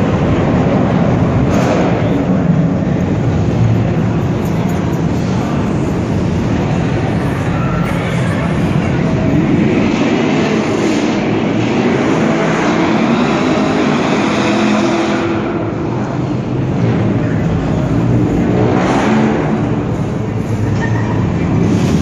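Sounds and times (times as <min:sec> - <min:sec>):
car engines revving hard: 0:00.0 - 0:22.0.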